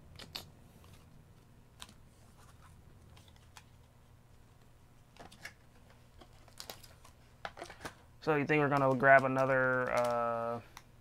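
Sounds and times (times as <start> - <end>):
low room hum: 0.0 - 11.0
cards and cardboard clicking: 0.1 - 1.0, 5.1 - 10.9.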